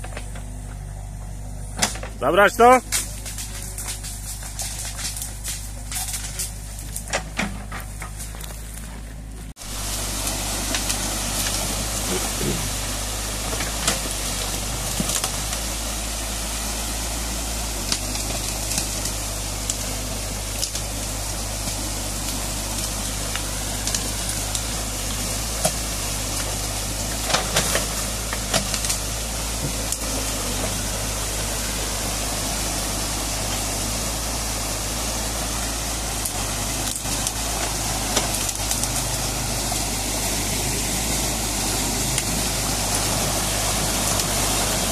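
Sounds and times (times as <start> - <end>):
excavator engine running: 0.0 - 44.9
stream water rushing: 9.6 - 44.9.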